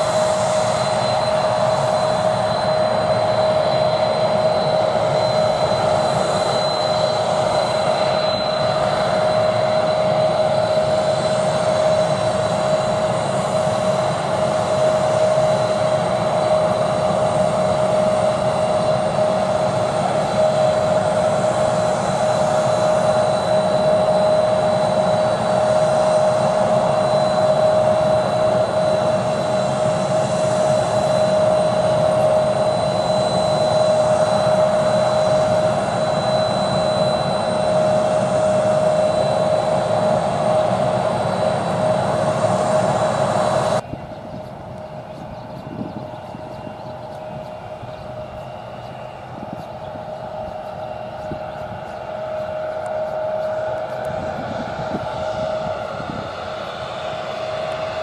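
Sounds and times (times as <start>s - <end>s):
jet engines idling: 0.0s - 58.0s.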